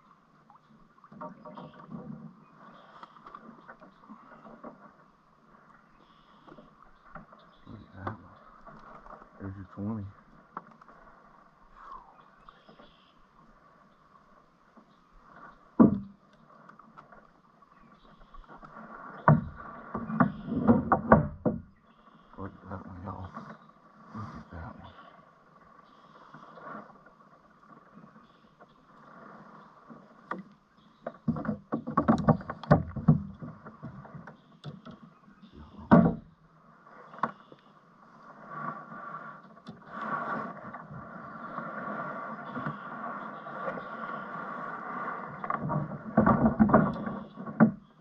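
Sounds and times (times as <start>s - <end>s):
paddle knocking against kayak: 15.4s - 17.2s, 18.1s - 21.8s, 27.7s - 36.4s, 39.5s - 48.0s.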